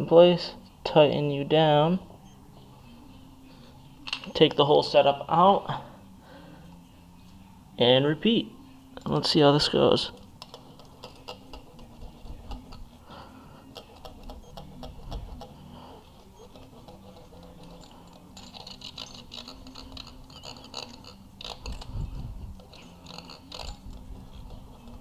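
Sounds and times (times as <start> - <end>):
metal blade ticking and scraping: 10.1 - 13.0, 13.7 - 25.0.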